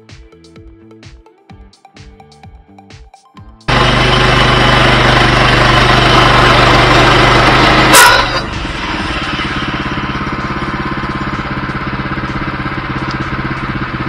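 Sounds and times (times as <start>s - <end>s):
sawmill engine running: 3.7s - 14.0s.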